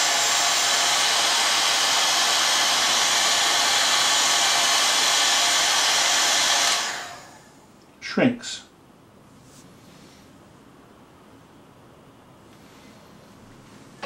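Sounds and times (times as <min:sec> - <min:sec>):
hot air gun blowing: 0:00.0 - 0:07.5.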